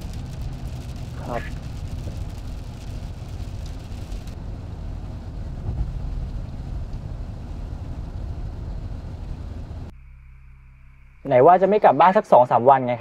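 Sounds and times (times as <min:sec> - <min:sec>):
car cabin rumble: 0:00.0 - 0:09.9.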